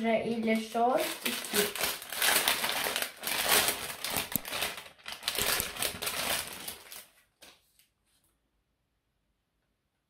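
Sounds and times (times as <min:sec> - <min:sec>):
plastic bag crinkling: 0:00.2 - 0:07.8.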